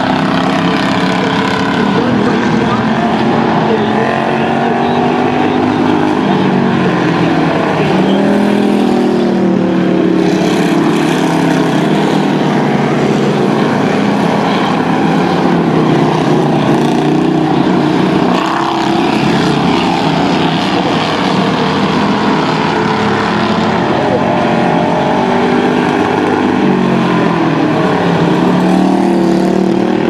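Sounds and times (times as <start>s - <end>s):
race car engines: 0.0s - 30.0s.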